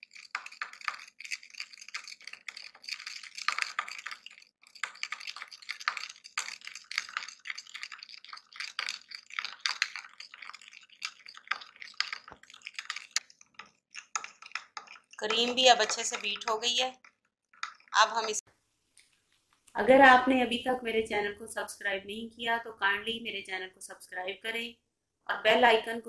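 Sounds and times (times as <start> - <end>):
metal spoon beating cream in bowl: 0.0 - 18.4.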